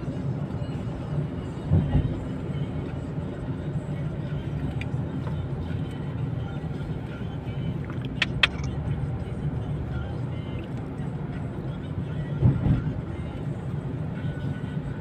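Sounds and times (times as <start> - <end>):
car cabin road and engine rumble: 0.0 - 15.0
sharp clicks: 7.9 - 8.8.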